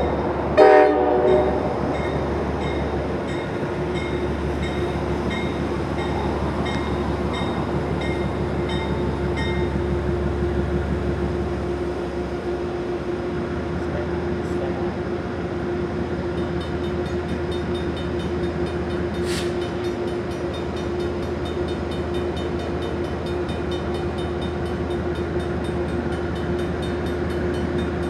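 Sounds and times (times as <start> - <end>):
train horn blast: 0.5 - 1.8.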